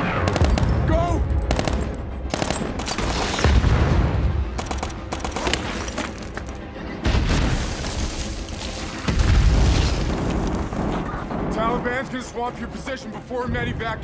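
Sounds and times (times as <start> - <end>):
rifle and machine-gun fire: 0.0 - 0.8, 1.5 - 5.8
film score music: 0.0 - 14.0
explosions: 9.0 - 11.6.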